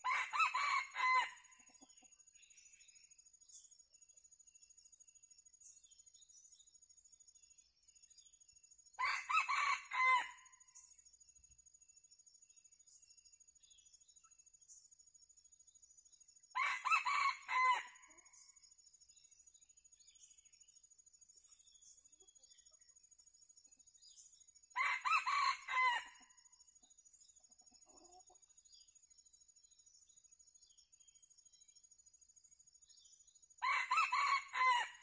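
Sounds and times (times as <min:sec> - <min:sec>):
rooster crowing: 0:00.0 - 0:01.4, 0:16.6 - 0:17.9, 0:24.8 - 0:26.2, 0:33.6 - 0:35.0.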